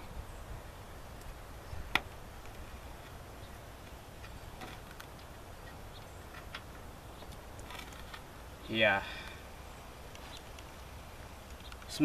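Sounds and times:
low background noise: 0.0 - 12.0
faint clicks and taps: 10.1 - 12.0.

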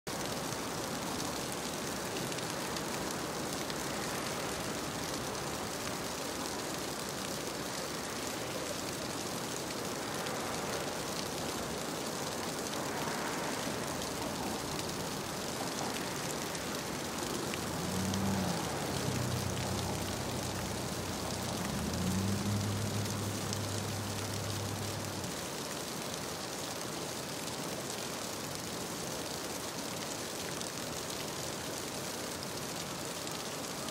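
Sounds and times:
mountain stream rushing: 0.1 - 33.9
passing vehicle engine: 13.1 - 25.4.

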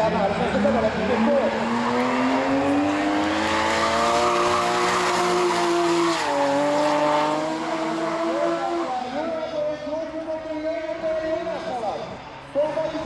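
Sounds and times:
car engine at high revs: 0.0 - 9.3
tyres skidding and squealing: 0.0 - 13.0.

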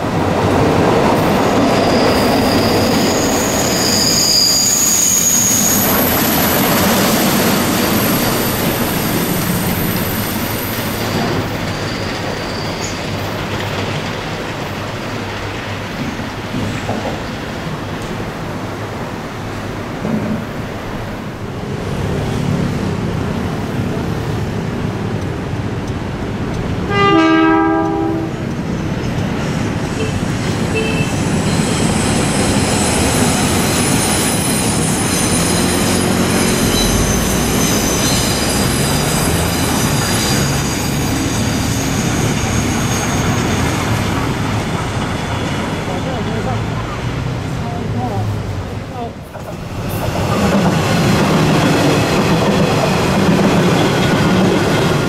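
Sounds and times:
steam train rumbling: 0.0 - 55.0
wheels squealing: 1.1 - 14.4, 29.4 - 47.0
steam train whistle: 26.9 - 28.4.

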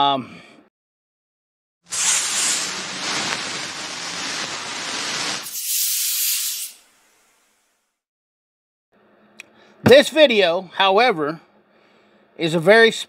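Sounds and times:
hissing spray: 1.9 - 7.6.

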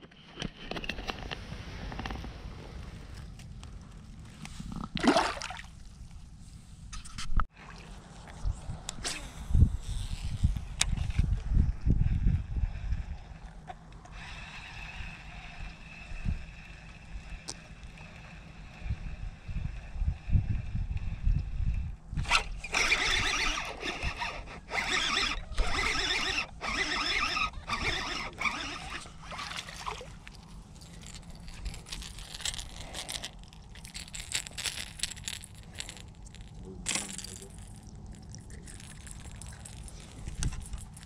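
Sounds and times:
fishing reel whirring: 14.1 - 17.4, 22.2 - 37.8, 38.4 - 41.0.

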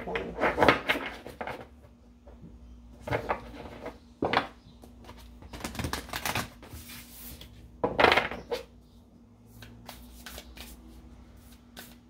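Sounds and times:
cards being shuffled: 5.0 - 7.5, 9.5 - 12.0.

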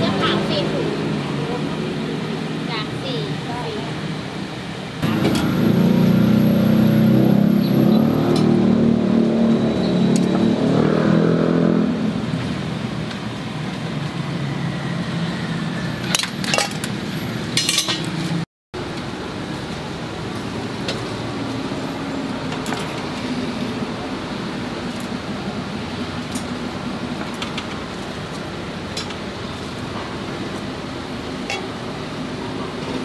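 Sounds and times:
street noise: 0.0 - 33.0
vehicle engine running: 5.0 - 10.6
metal tongs clinking on metal: 17.6 - 18.1.

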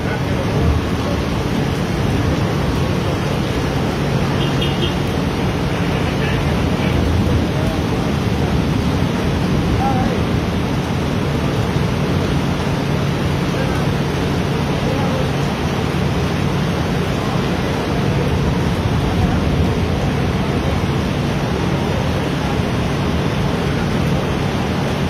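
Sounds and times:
floodwater rushing: 0.0 - 25.0
heavy rain: 0.0 - 25.0.

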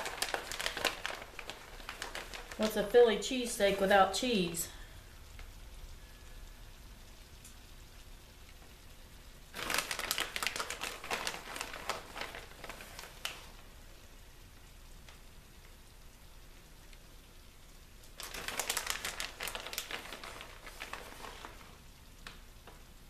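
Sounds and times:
plastic bag crinkling: 0.0 - 4.6, 9.5 - 13.7, 18.1 - 22.4.

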